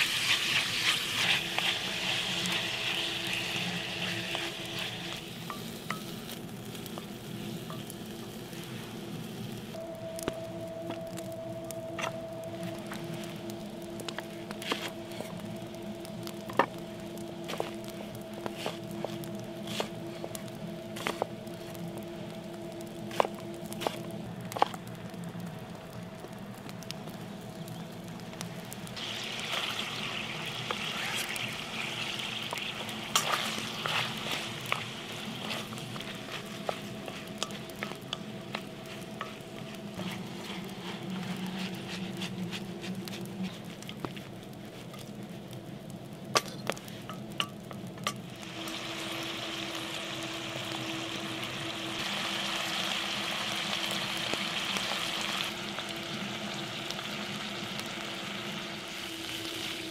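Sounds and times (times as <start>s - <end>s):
utensil scraping a wok: 0.0s - 7.8s, 29.0s - 45.1s
meat and onion sizzling in a wok: 0.0s - 9.9s, 11.9s - 24.8s, 27.8s - 45.3s, 46.2s - 59.9s.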